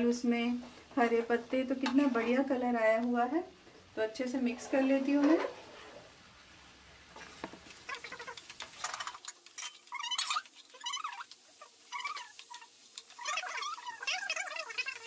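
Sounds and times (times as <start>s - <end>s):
spatula scraping and tapping pan: 7.2s - 13.2s
short squeaky chirps: 9.9s - 11.2s.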